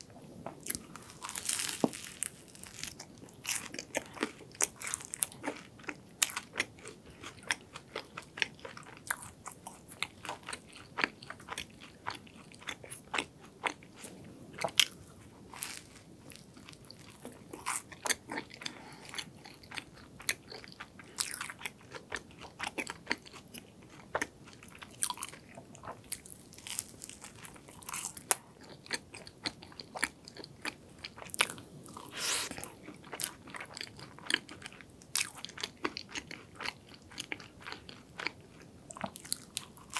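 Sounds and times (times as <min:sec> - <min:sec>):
chewing: 0:00.4 - 0:39.9
crunchy bites into pastry: 0:00.6 - 0:07.4, 0:26.1 - 0:29.3.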